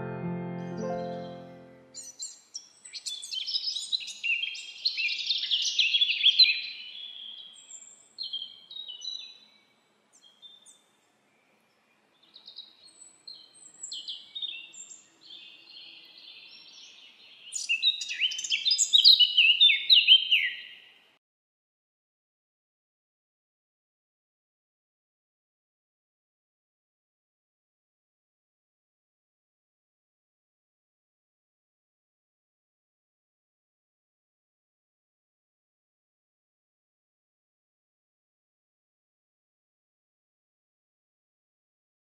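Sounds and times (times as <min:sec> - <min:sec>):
songbirds twittering: 0:00.9 - 0:21.0.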